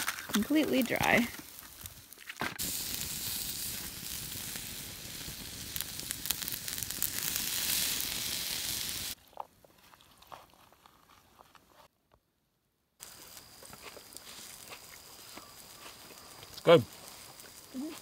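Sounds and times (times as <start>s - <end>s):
skewers sizzling on a grill: 0.0s - 9.2s, 13.0s - 18.0s.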